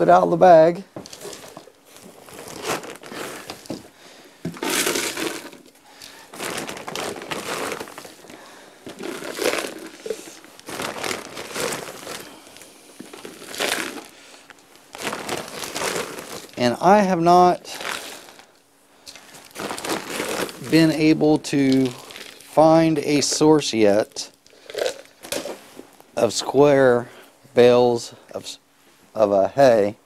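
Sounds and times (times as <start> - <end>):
dry feed rustling and rattling: 1.0 - 3.9, 4.5 - 18.5, 19.1 - 23.5.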